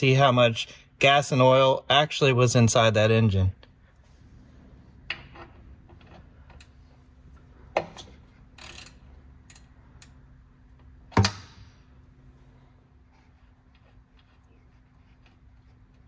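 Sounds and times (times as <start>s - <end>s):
faint steady hum: 0.0s - 16.0s
wrench clicking and knocking on metal: 7.8s - 10.2s.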